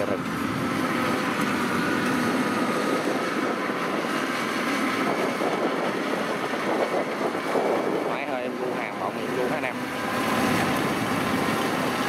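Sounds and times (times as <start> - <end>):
combine harvester machinery running: 0.0 - 8.0.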